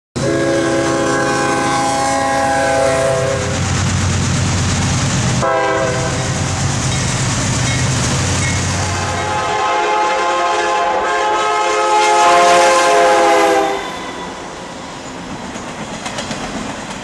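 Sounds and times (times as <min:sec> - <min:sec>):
locomotive horn: 0:00.2 - 0:03.7, 0:05.4 - 0:06.5, 0:08.8 - 0:14.5
locomotive engines and wheels rumbling: 0:00.2 - 0:11.7, 0:13.1 - 0:17.0.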